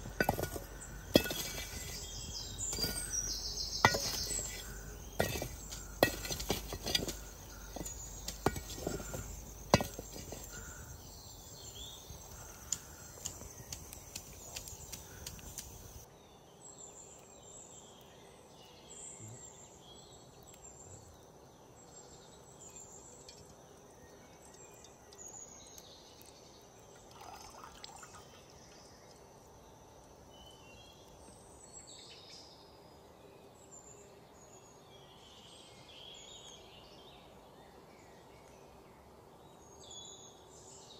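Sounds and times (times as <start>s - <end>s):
metal utensil scraping a pan: 0.0s - 10.8s
birds chirping: 0.0s - 16.1s
steady sizzling hiss: 0.0s - 40.9s.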